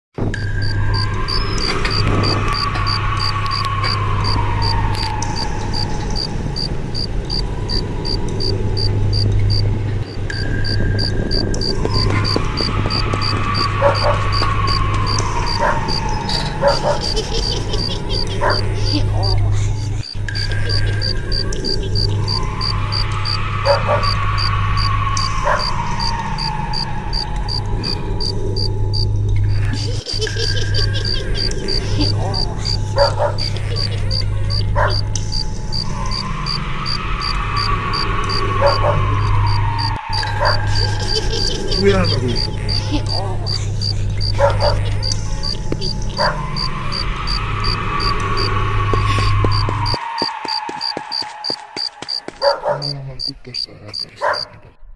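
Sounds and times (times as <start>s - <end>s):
low hum: 0.2s - 50.4s
steady tone: 0.4s - 16.4s, 30.6s - 52.3s
cricket chirping: 0.4s - 19.4s, 20.0s - 54.5s
faint whistle-like sliding tone: 46.1s - 50.3s.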